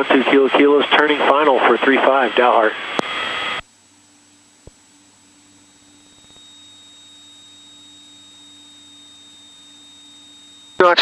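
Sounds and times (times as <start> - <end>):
radio hiss: 0.0 - 3.6
faint electrical hum and whine: 0.0 - 11.0.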